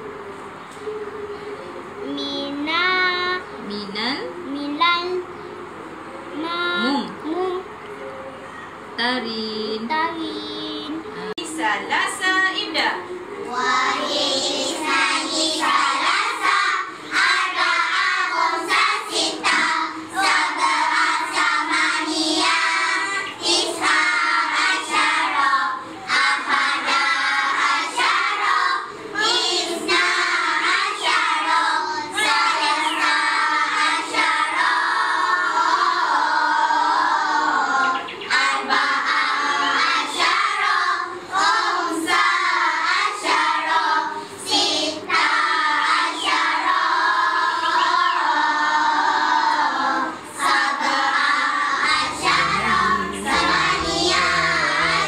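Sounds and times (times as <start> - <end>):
children singing in chorus: 13.4 - 55.0.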